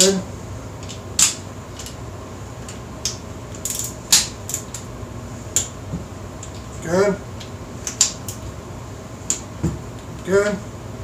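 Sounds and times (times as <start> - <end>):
torque wrench clicking: 3.0 - 4.8.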